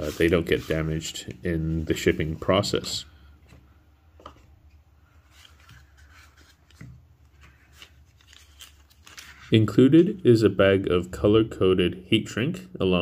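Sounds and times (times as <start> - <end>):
hands handling packaging: 5.2 - 9.5.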